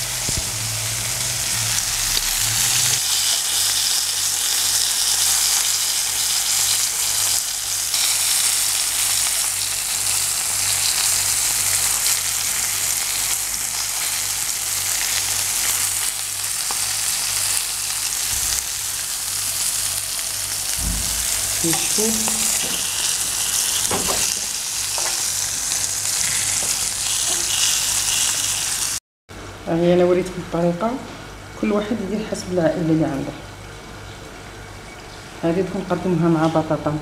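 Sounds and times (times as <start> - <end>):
fish sizzling in hot oil: 0.0 - 29.0.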